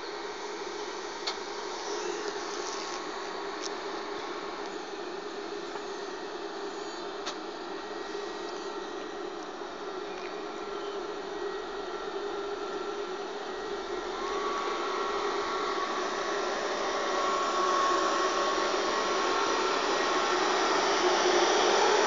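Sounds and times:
faint electric whine: 0.0 - 22.0
electric train rushing: 13.6 - 22.0.

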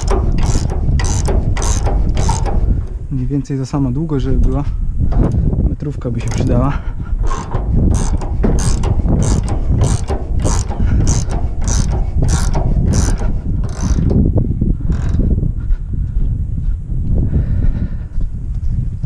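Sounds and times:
conveyor chain and slats clanking: 0.0 - 3.0, 7.3 - 14.2
low steady drive running: 0.0 - 3.1, 7.2 - 14.4.

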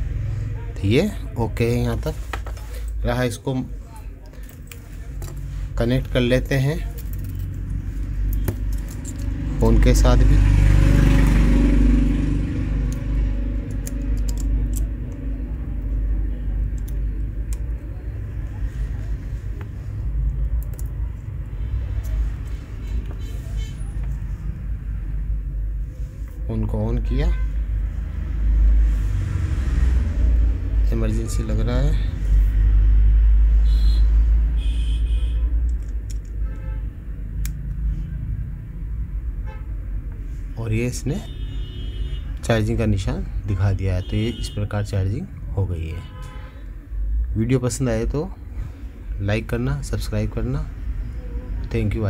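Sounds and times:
road traffic rumble: 0.0 - 52.0
car horn toots: 33.6 - 35.5, 41.2 - 42.4, 44.0 - 44.7, 45.9 - 46.6
small sharp clicks of connector: 37.4 - 37.8.

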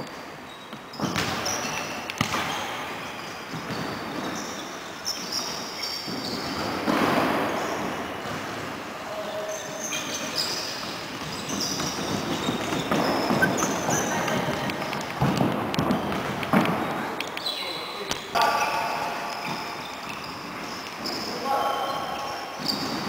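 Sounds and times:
sneakers squeaking: 0.0 - 23.0
ball kicks and bounces: 1.0 - 2.8, 10.8 - 17.0
players' voices echoing: 6.1 - 23.0.

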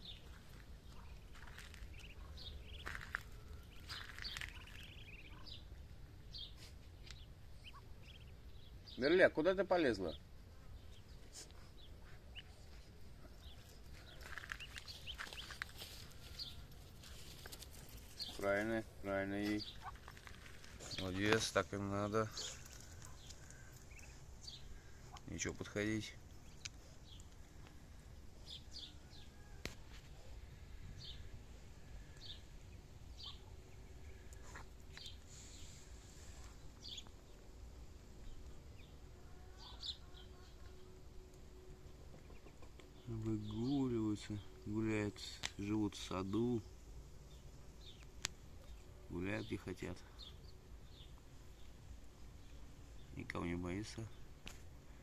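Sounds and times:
ducklings peeping: 0.1 - 27.4, 32.0 - 35.4, 42.2 - 46.5.

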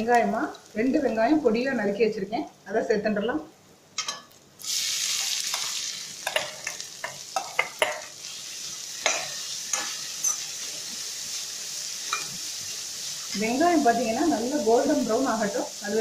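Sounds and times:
onions sizzling in hot oil: 0.0 - 2.2, 4.2 - 16.0
spatula tapping pan: 5.5 - 8.1, 9.0 - 10.4.

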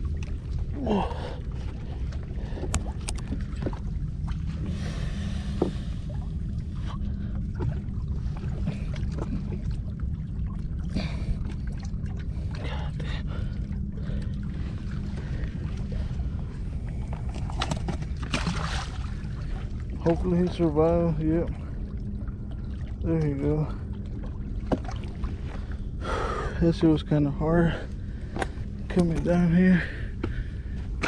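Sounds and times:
water lapping against rocks: 10.7 - 21.9.

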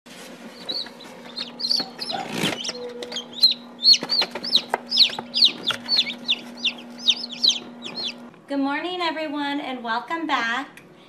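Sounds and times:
steady low hum: 0.1 - 11.0
chicks peeping: 0.4 - 8.3.

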